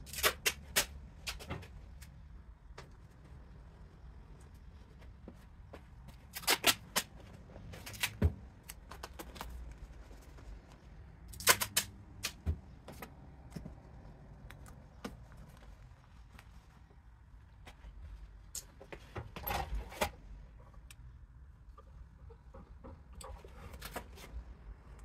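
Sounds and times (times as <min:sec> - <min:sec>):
cardboard and tape handled on workbench: 0:05.0 - 0:13.9, 0:23.4 - 0:24.5.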